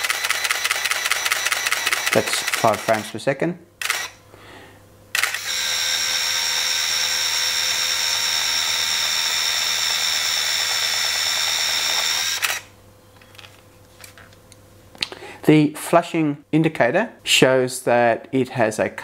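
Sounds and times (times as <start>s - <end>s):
camera click: 0.0s - 3.0s, 3.8s - 4.2s, 5.2s - 5.6s, 11.8s - 12.7s
high-pitched motor whine: 5.2s - 12.7s.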